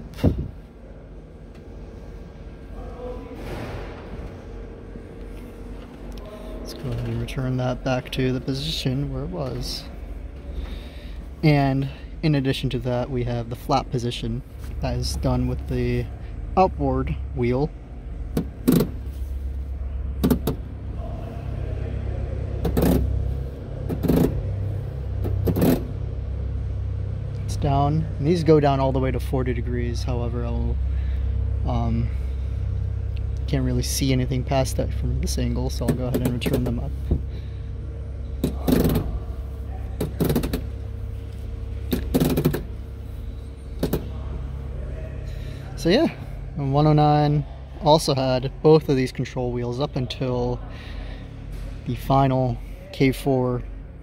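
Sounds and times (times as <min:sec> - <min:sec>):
steady low hum: 0:00.0 - 0:54.0
flap wheel dull clunks: 0:40.0 - 0:40.8.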